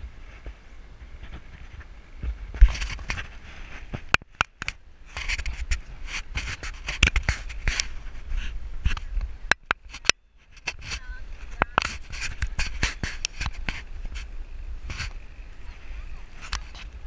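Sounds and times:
low wind rumble on microphone: 0.0s - 17.0s
scraping and rubbing on camera housing: 2.5s - 15.3s, 16.3s - 17.0s.

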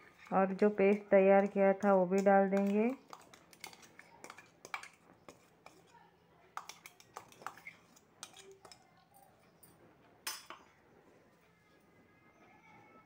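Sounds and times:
utensil clinking steel bowl: 0.0s - 5.9s, 6.6s - 8.9s.

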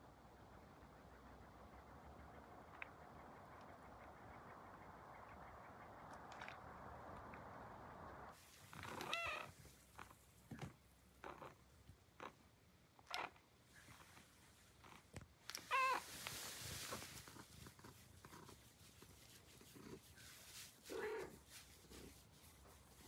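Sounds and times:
cat meowing: 8.8s - 9.5s, 15.7s - 16.1s
fur rustling under stroking hand: 15.6s - 23.0s.

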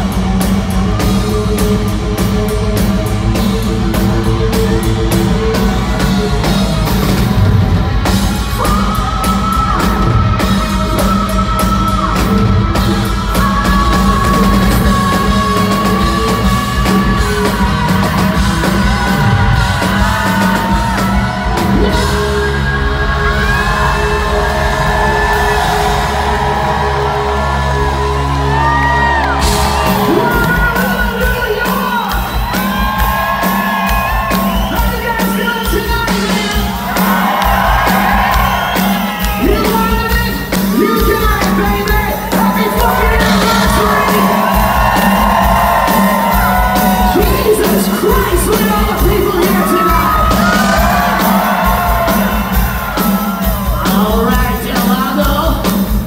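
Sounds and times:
live hard rock band: 0.0s - 56.0s
fast kick drum beats: 29.4s - 56.0s
man singing rock vocals: 39.4s - 45.4s, 46.5s - 51.8s.

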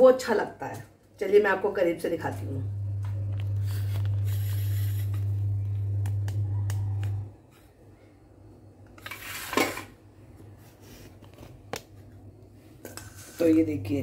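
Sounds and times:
steady low hum: 1.9s - 8.9s
knife scrape: 3.6s - 5.3s, 9.0s - 9.8s, 12.8s - 13.5s.

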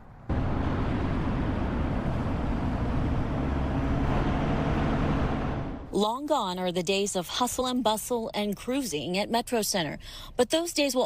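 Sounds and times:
car driving rumble: 0.0s - 6.0s
road and wind noise: 0.0s - 6.0s.

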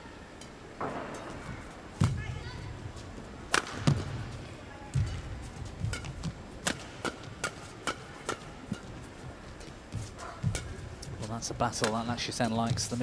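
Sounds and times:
rackets striking shuttlecock: 3.5s - 4.1s, 5.8s - 9.0s, 10.4s - 10.9s, 11.8s - 12.1s.

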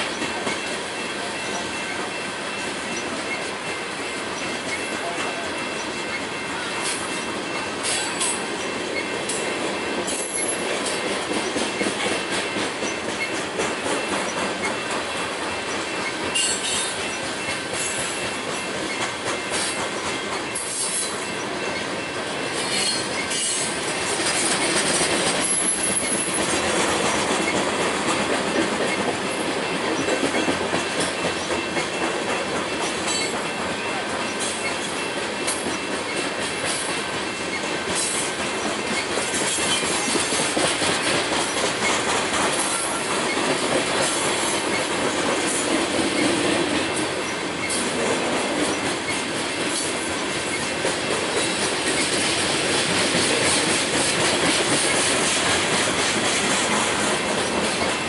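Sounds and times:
train wheels clacking on rails: 0.0s - 58.0s
high wheel squeal: 20.5s - 23.7s, 25.4s - 26.5s, 33.1s - 36.2s.

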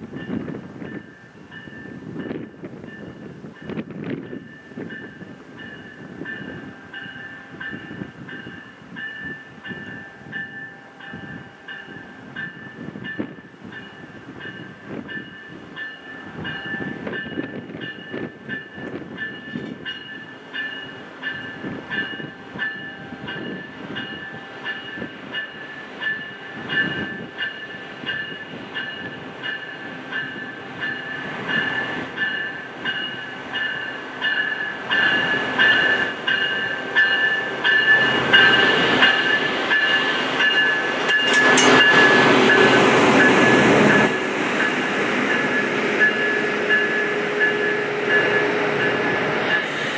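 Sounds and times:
diesel locomotive rolling: 0.0s - 49.9s
bell ringing: 13.8s - 49.9s
wheels clacking over rail joints: 32.2s - 49.9s.

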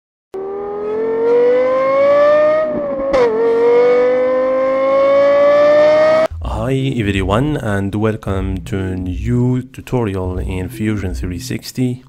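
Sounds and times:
gear change: 0.4s - 6.3s
car engine accelerating: 0.4s - 6.4s.

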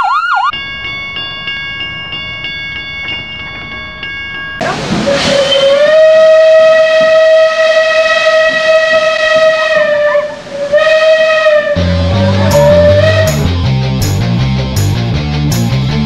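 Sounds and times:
steam hiss: 4.6s - 6.3s
steam locomotive whistle blast: 4.6s - 13.6s.

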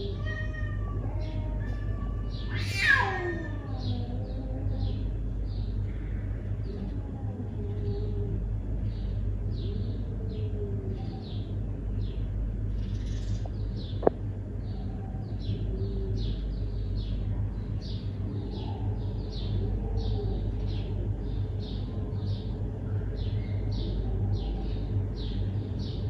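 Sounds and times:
steady low hum: 0.0s - 26.0s
small bird chirping: 8.8s - 22.5s.

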